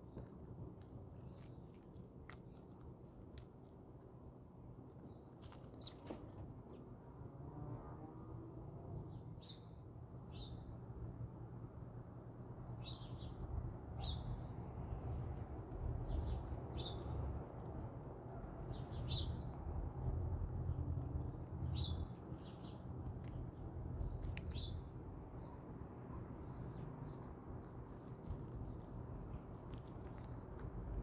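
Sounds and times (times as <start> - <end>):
bird chirping: 18.7 - 19.5, 21.6 - 22.8, 24.0 - 30.4.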